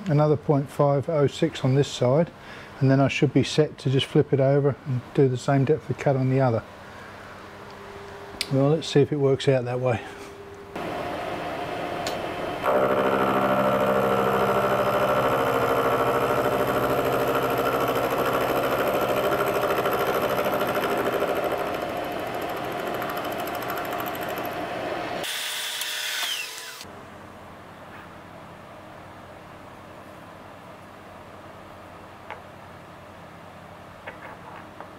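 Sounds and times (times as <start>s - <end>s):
faint steady hum: 0.0s - 25.3s
machine whine winding down: 10.8s - 26.9s
milling machine cutting metal: 12.6s - 26.8s.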